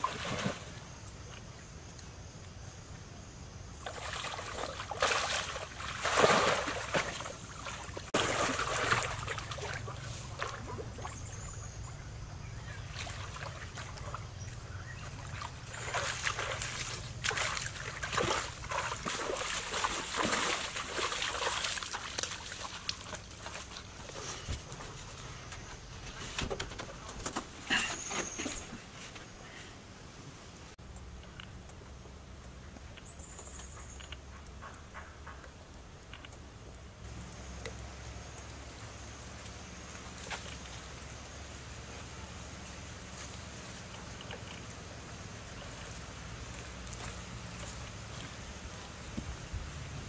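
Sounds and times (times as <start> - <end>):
pool water splashing from swimming: 3.9 - 11.6, 12.8 - 24.0.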